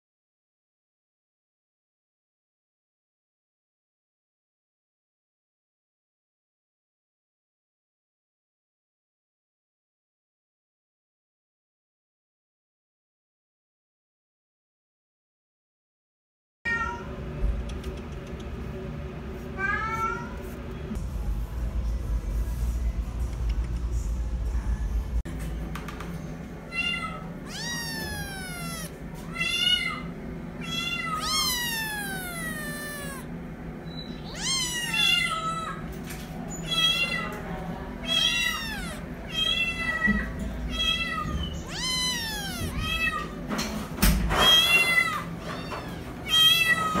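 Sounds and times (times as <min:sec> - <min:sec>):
young cat meowing: 0:26.8 - 0:33.3, 0:34.3 - 0:35.8, 0:38.0 - 0:43.4, 0:44.4 - 0:47.0.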